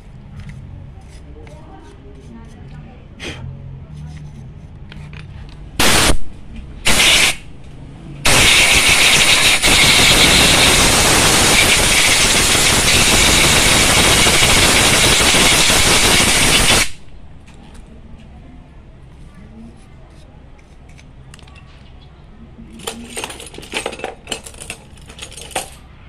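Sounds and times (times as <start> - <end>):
compressed air blow gun hissing: 6.9 - 7.4, 8.3 - 17.0.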